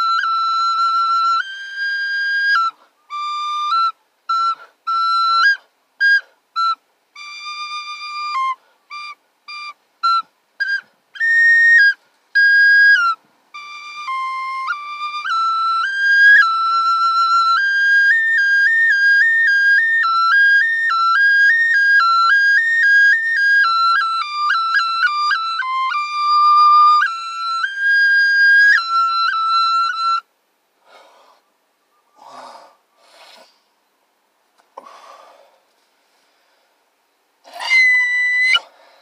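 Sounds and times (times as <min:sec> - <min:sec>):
small flute melody: 0:00.0 - 0:30.3, 0:37.5 - 0:38.7
short breathy sounds: 0:30.8 - 0:31.5, 0:32.2 - 0:33.8, 0:34.7 - 0:37.7.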